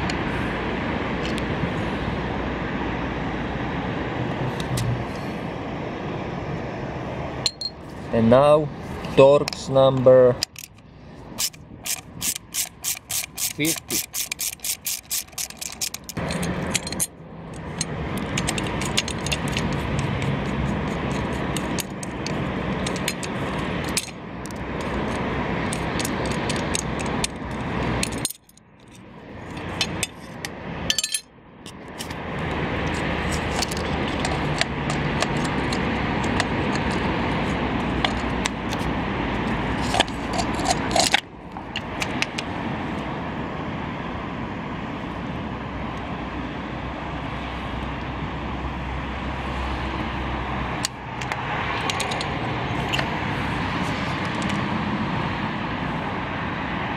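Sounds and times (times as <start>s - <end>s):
rushing background noise: 0.0s - 56.9s
metal clicks and clinks: 11.4s - 20.2s, 24.8s - 27.4s, 28.0s - 30.2s, 30.9s - 32.1s, 39.8s - 42.4s, 50.8s - 53.1s.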